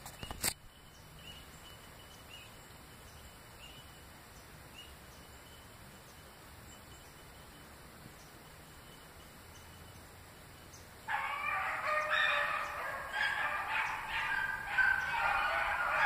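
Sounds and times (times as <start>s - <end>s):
hounds baying: 11.1s - 16.0s.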